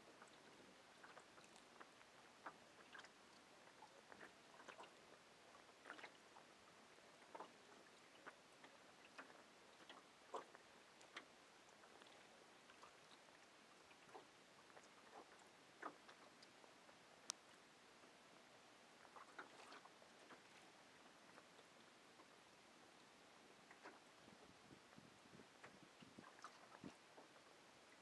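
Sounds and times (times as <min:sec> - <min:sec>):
faint small clicks and ticks: 0:00.0 - 0:18.2, 0:18.9 - 0:22.4
low hiss: 0:00.0 - 0:28.0.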